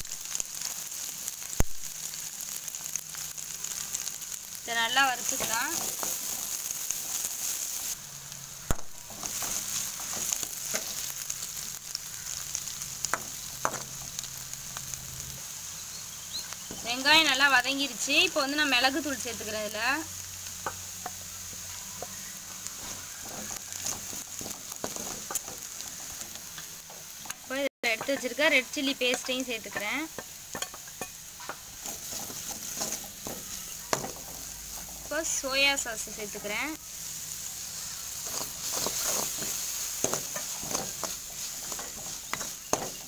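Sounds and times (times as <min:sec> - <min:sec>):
onions sizzling in hot oil: 0:00.0 - 0:43.0
steel spoon scraping pan: 0:37.9 - 0:43.0.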